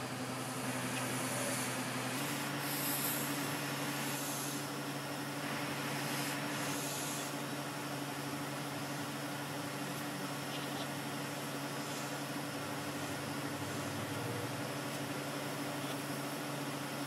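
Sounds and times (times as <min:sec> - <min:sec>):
low machine hum: 0:00.0 - 0:17.0
hiss: 0:00.2 - 0:04.8, 0:05.4 - 0:07.5.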